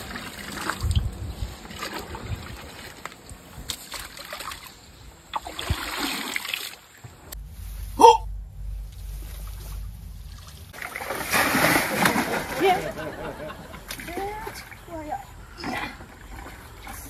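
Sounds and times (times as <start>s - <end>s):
water splashing and pouring: 0.0s - 7.0s, 9.0s - 13.0s.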